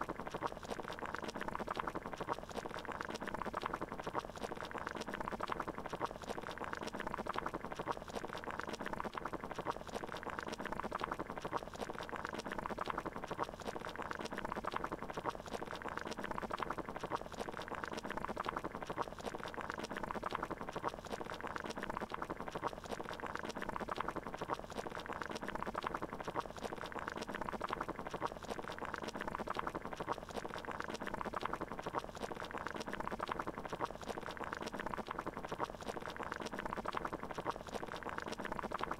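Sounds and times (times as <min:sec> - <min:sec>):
water boiling and bubbling: 0:00.0 - 0:38.9.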